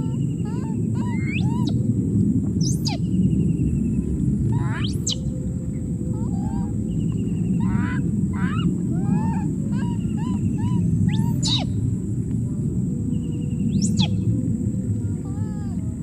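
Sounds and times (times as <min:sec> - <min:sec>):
high animal chirping: 0:00.0 - 0:01.8, 0:04.5 - 0:05.3, 0:06.1 - 0:11.8, 0:13.8 - 0:14.2
faint high whine: 0:00.0 - 0:16.0
low rumble: 0:00.0 - 0:16.0
rising whistle: 0:01.0 - 0:01.8, 0:06.6 - 0:11.8, 0:13.4 - 0:14.3.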